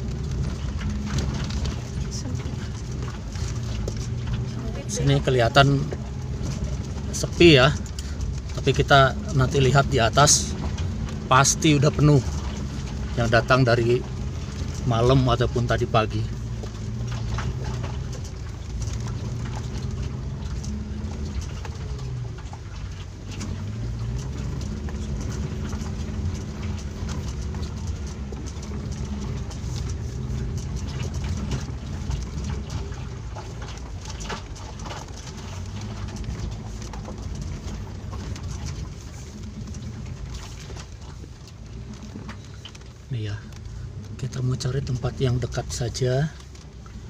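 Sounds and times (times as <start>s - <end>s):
car engine droning: 0.0s - 47.0s
tyres and body rattling over stones: 0.0s - 47.0s.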